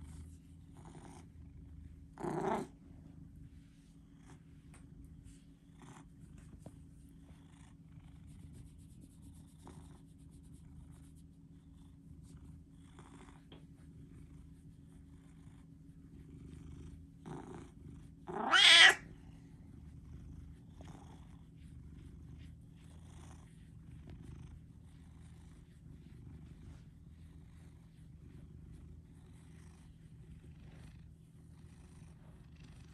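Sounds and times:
cat purring: 0.0s - 32.9s
cat call: 18.3s - 19.0s.

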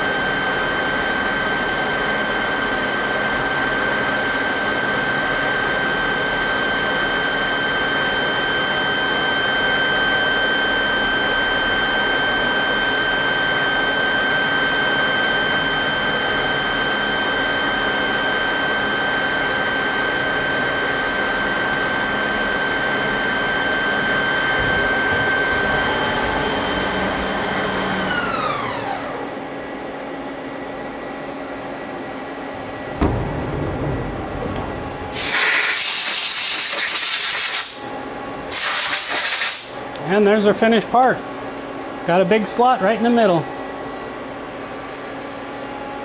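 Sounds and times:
lathe spindle high whine: 0.0s - 33.2s
sharp clunk: 32.9s - 35.6s.

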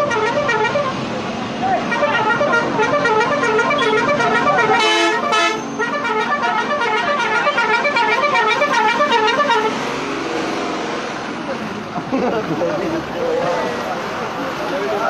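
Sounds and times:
melodic truck horn: 0.0s - 1.0s, 1.8s - 11.2s
steady horn blast: 0.0s - 1.0s, 1.8s - 11.2s.

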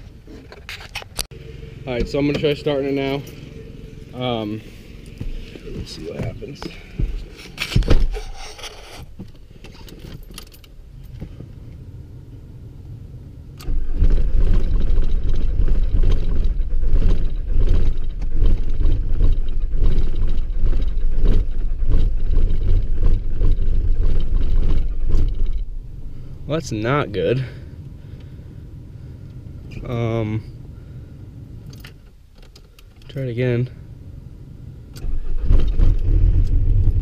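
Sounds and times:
clunks and rattles: 0.0s - 4.2s, 5.0s - 11.6s, 13.6s - 26.8s, 34.9s - 37.0s
diesel engine cranking and running: 0.5s - 9.0s, 13.5s - 33.3s, 34.8s - 37.0s.

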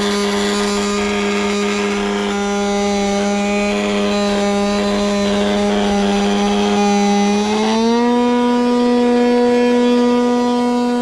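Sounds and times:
robot vacuum fan whine: 0.0s - 11.0s.

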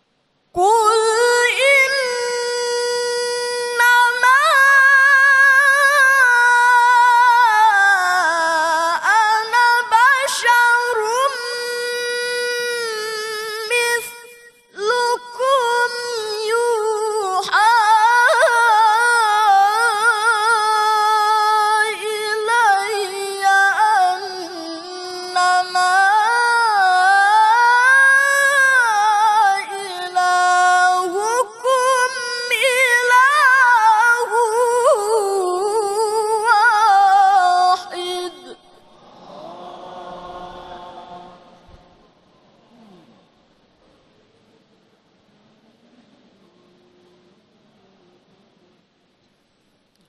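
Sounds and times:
man reciting melodically: 0.6s - 14.2s, 14.8s - 38.8s.

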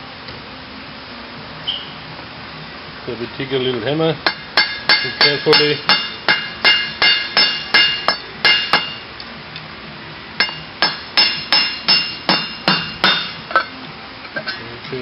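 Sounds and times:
hammer tapping metal tool: 4.2s - 9.0s, 10.4s - 13.7s.

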